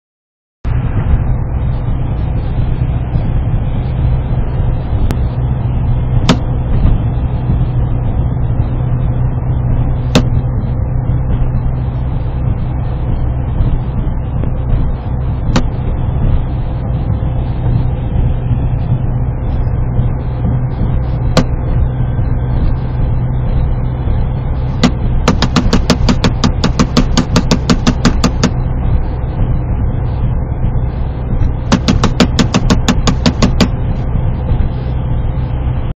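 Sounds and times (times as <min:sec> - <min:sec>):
car engine and road noise: 0:00.6 - 0:35.9
fast run of clicks: 0:24.8 - 0:28.6, 0:31.7 - 0:33.8
sharp clicks: 0:24.8 - 0:28.6, 0:31.7 - 0:33.8.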